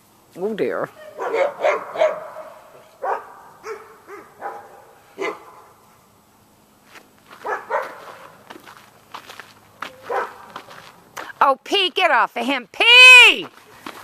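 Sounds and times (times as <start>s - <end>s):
dog barking: 1.0s - 5.7s, 7.4s - 8.3s, 9.9s - 10.8s.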